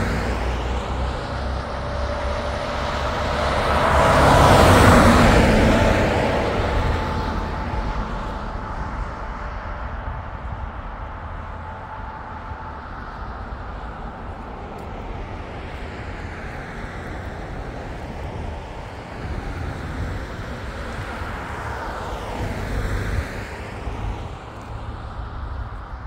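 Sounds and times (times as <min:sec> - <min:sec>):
vehicle passing by: 0:00.0 - 0:10.8
steady low rumble: 0:00.0 - 0:26.0.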